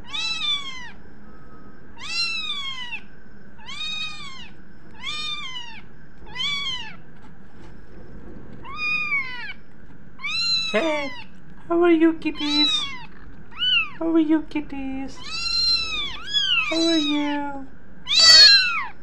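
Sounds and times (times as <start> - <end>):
kittens mewing: 0.0 - 1.0, 2.0 - 7.0, 8.6 - 9.6, 10.2 - 11.4, 12.3 - 14.0, 15.2 - 19.0.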